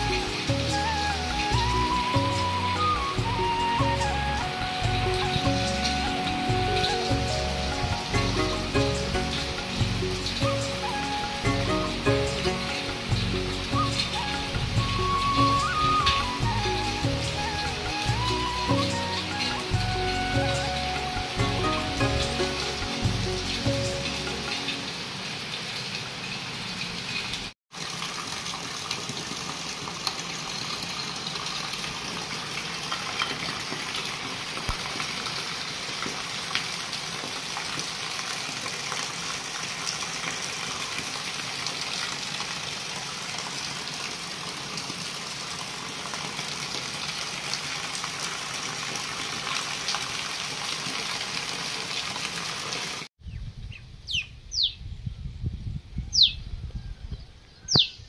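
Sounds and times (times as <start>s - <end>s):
heavy rain on concrete: 0.0s - 53.1s
bird chirping: 53.2s - 54.9s, 56.0s - 56.5s, 57.2s - 58.0s.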